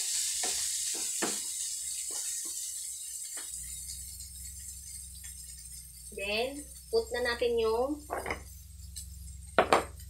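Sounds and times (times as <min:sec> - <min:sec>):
vegetables sizzling in a pan: 0:00.0 - 0:10.0
low steady hum: 0:03.5 - 0:10.0.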